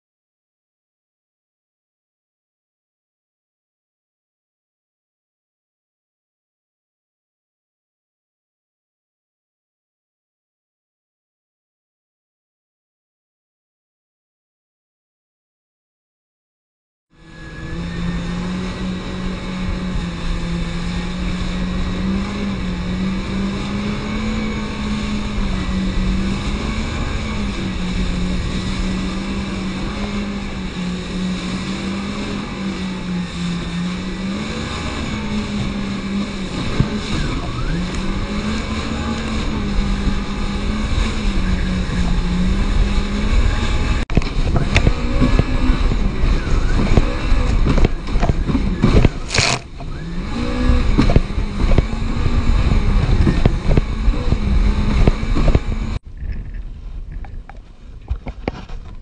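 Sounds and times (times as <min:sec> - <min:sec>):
wind: 0:17.1 - 0:59.0
jet ski engine running: 0:17.2 - 0:59.0.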